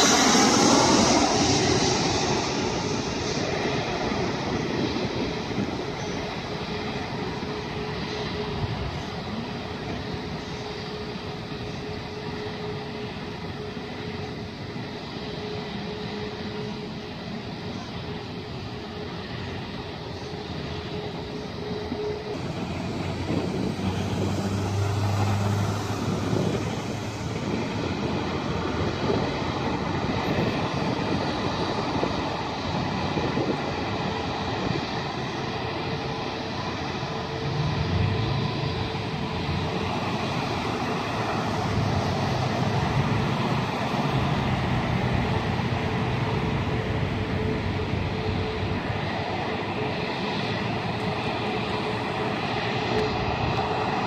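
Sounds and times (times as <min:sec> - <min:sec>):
jet engines rushing and whining: 0:00.0 - 0:54.0.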